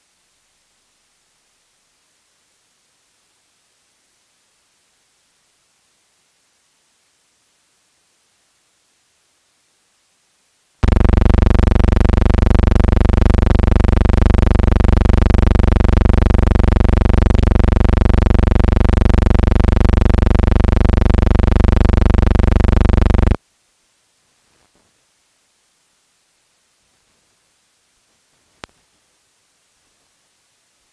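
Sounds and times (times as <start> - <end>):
low electronic buzz: 10.8 - 23.4.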